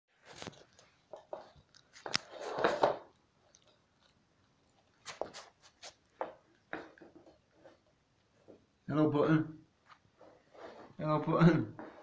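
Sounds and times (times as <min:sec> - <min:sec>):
puppy chewing on a mop: 0:00.2 - 0:08.6.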